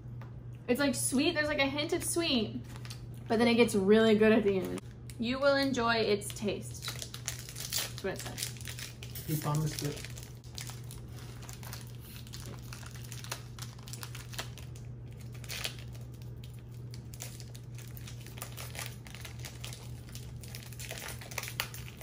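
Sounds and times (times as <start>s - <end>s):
steady low hum: 0.0s - 22.0s
plastic wrapper crinkling: 6.8s - 22.0s.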